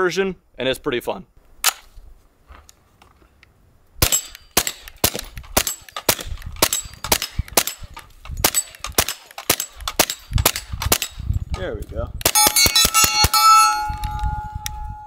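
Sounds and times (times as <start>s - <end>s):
suppressed gunshots: 4.0s - 11.2s.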